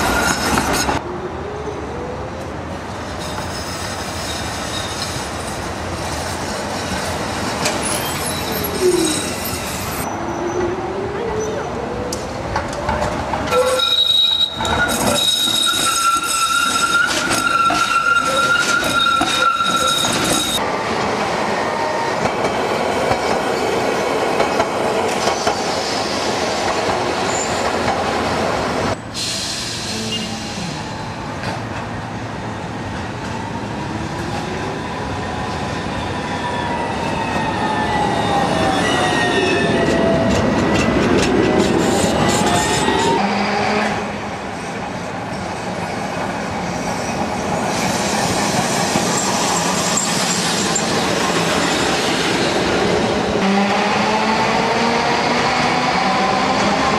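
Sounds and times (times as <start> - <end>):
tram wheels squealing: 0.0 - 1.0, 3.0 - 11.7, 13.5 - 20.6, 23.2 - 27.9, 34.1 - 44.0, 46.6 - 53.9
tram rumbling along track: 0.0 - 56.9
tram whine: 0.0 - 56.9.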